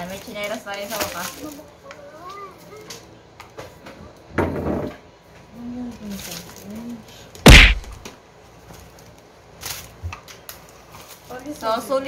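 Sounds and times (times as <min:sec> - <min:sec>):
loud thunk: 0:07.5 - 0:08.0.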